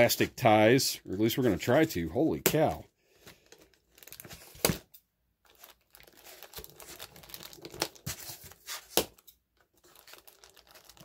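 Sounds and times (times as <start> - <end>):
plastic bags crinkling: 3.2 - 4.8, 5.4 - 11.0.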